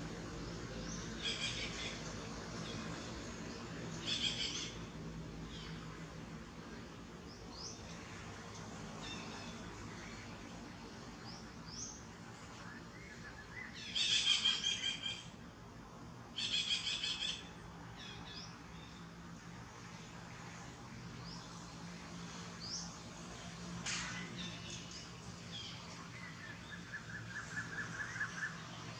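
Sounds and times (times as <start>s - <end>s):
birds trilling: 13.1s - 15.4s.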